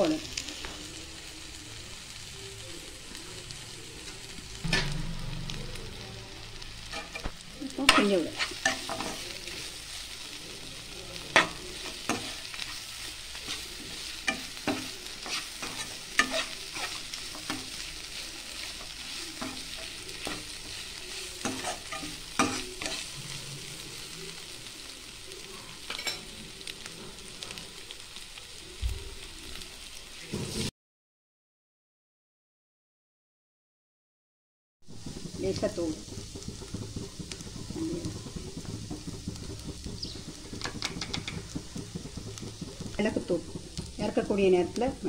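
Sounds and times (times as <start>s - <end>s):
meat sizzling in a pan: 0.0s - 30.7s, 34.8s - 45.0s
steel spatula knocking on pan: 4.6s - 5.8s, 35.0s - 44.5s.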